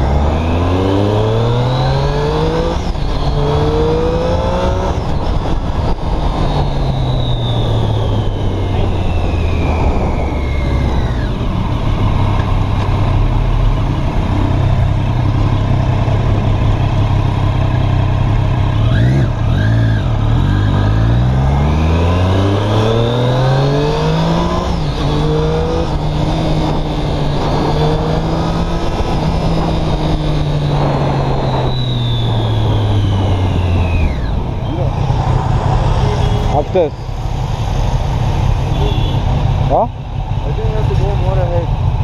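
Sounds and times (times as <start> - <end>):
motorcycle engine revving: 0.0 - 42.0
road and wind noise: 0.0 - 42.0.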